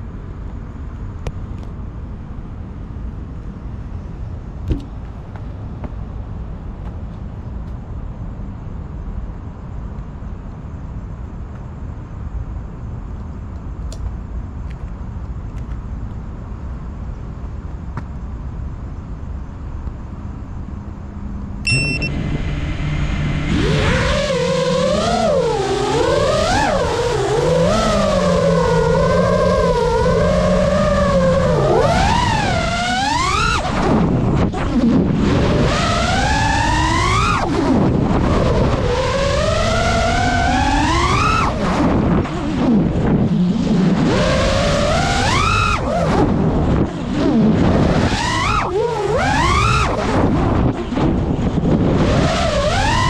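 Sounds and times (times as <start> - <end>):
low outdoor rumble: 0.0 - 53.0
short high beep: 21.6 - 22.4
quadcopter motors humming: 21.7 - 53.0.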